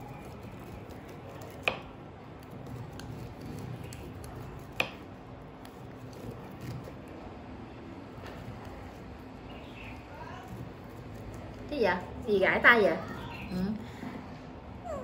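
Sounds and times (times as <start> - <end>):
knife cutting corn on board: 0.0 - 7.0.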